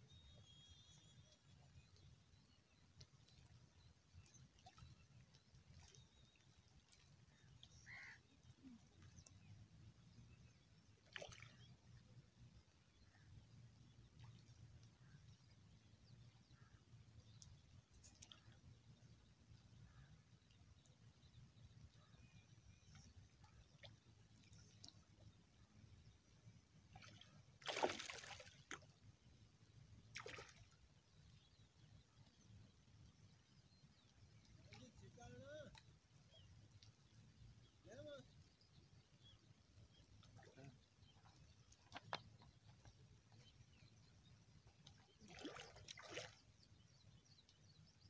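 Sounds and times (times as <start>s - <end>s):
object splashing into water: 11.0s - 11.6s, 27.0s - 28.9s, 30.1s - 30.8s, 45.2s - 46.4s.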